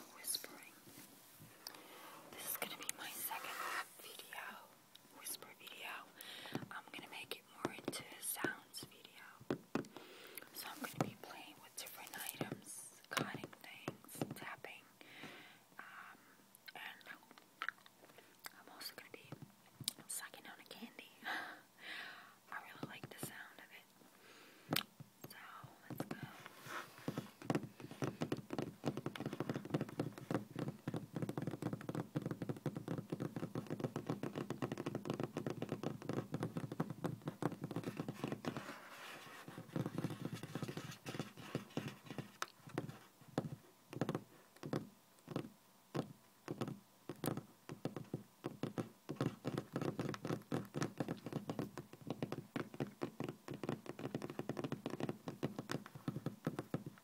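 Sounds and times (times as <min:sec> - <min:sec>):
fingernails tapping on tabletop: 0:27.1 - 0:38.7, 0:39.5 - 0:57.0.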